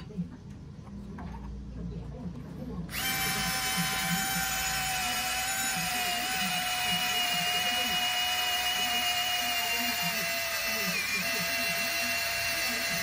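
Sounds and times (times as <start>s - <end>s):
small electric motor whining: 2.9s - 13.0s.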